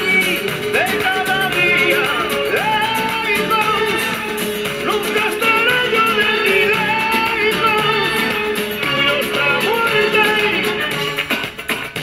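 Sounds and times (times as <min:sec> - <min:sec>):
instrumental accompaniment: 0:00.0 - 0:12.0
person singing: 0:00.0 - 0:12.0.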